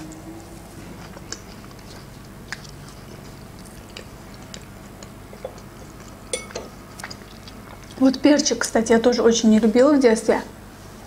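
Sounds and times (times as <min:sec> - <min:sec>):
chewing clicks: 0:01.0 - 0:06.2
fork clinking against plate: 0:06.3 - 0:06.8.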